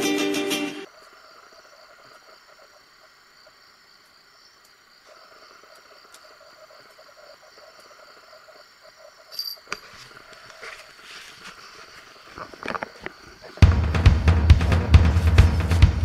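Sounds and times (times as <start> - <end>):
night insects chirping: 0.0 - 16.0
drum-heavy music: 13.6 - 16.0.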